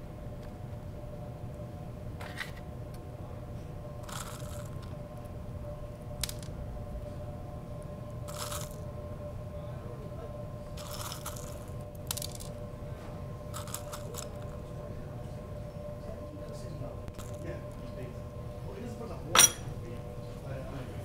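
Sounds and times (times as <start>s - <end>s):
steady low hum: 0.0s - 21.0s
pecans crunching and rustling: 13.5s - 14.5s.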